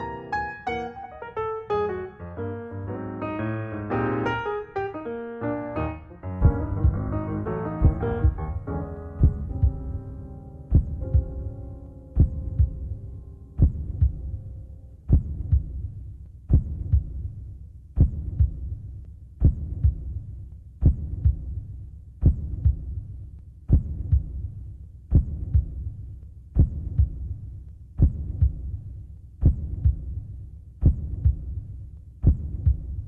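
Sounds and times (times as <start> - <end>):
heartbeat: 6.4 - 10.0, 10.7 - 11.6, 12.2 - 33.0.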